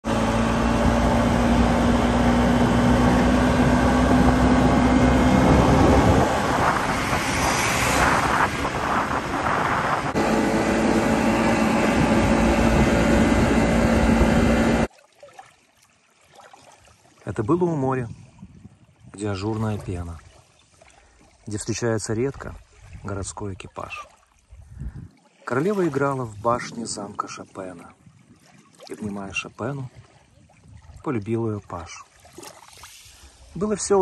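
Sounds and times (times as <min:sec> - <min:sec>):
road noise: 0:00.0 - 0:14.9
scooter engine hum: 0:00.0 - 0:14.9
bus passing: 0:00.1 - 0:14.9
wind on microphone: 0:00.6 - 0:14.9, 0:18.0 - 0:19.8, 0:24.5 - 0:25.2, 0:29.9 - 0:31.0.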